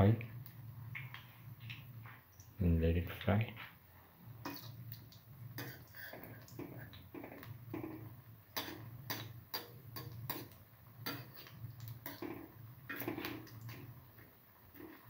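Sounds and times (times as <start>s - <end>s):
patties sizzling in oil: 3.8s - 15.0s.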